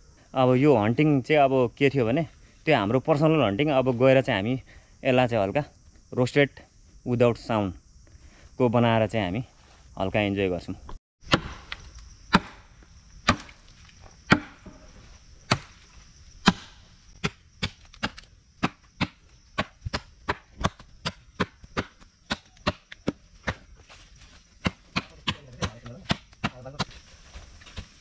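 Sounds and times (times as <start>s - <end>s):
knife chopping into branch: 13.2s - 13.6s, 14.3s - 14.8s, 15.5s - 15.8s, 16.4s - 23.6s, 24.6s - 26.9s.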